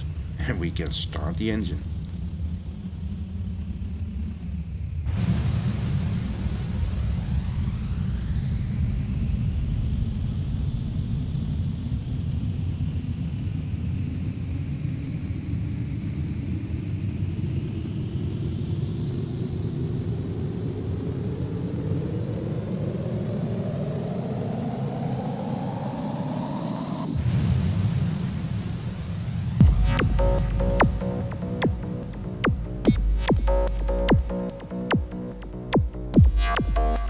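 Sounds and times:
synthesized low engine rumble: 0:00.0 - 0:19.5, 0:27.3 - 0:37.0
tone climbing in pitch: 0:29.6 - 0:37.0.

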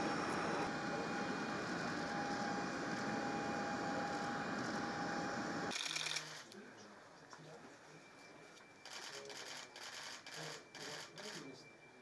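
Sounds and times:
jet turbine rushing: 0:00.0 - 0:05.7
high steady whine: 0:00.0 - 0:05.8.

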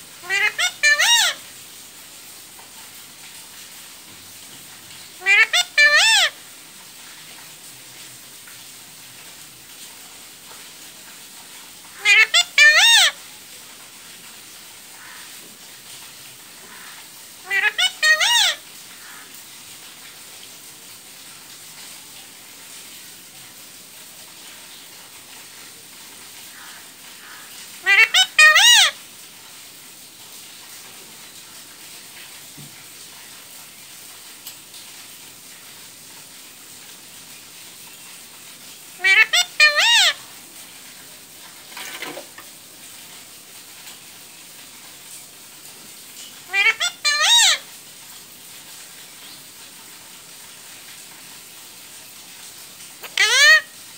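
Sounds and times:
parakeet shrill calls: 0:00.2 - 0:01.4, 0:05.2 - 0:06.3, 0:12.0 - 0:13.1, 0:17.4 - 0:18.6, 0:27.8 - 0:29.0, 0:39.0 - 0:40.2, 0:46.5 - 0:47.6, 0:53.0 - 0:53.7.

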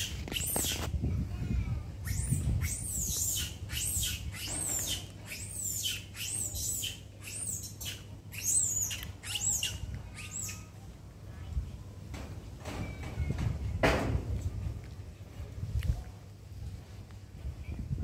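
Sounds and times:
animal squeaky calls: 0:00.0 - 0:00.8, 0:02.0 - 0:10.8.

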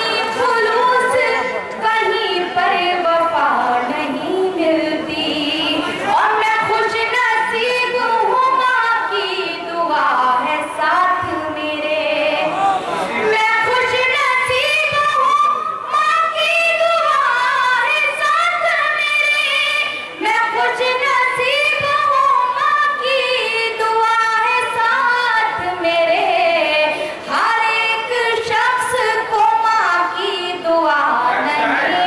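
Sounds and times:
woman singing: 0:00.0 - 0:12.5, 0:13.3 - 0:32.0.

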